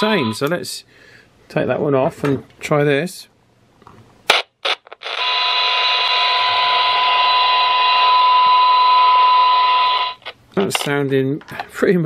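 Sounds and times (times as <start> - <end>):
radio loudspeaker test tone: 0.0 - 0.4, 5.1 - 10.2.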